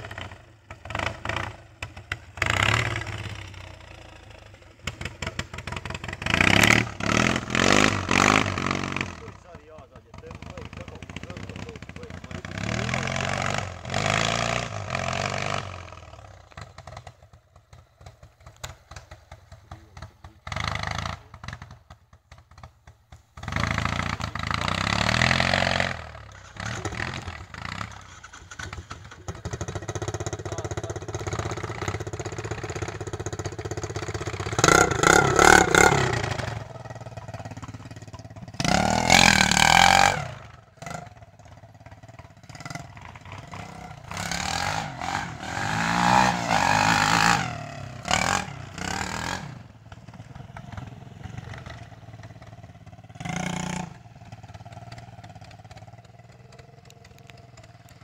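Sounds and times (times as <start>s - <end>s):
quad bike engine revving: 0.0s - 22.8s, 23.4s - 58.0s.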